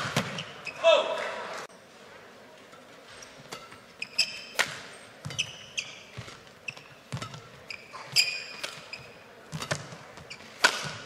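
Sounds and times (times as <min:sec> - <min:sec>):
shoes squeaking on court floor: 0:00.0 - 0:00.9, 0:02.7 - 0:11.0
rackets striking shuttlecock: 0:03.2 - 0:11.0.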